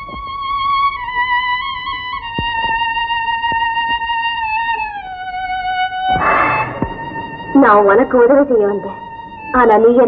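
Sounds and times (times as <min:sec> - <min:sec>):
slow high melody line: 0:06.2 - 0:09.9.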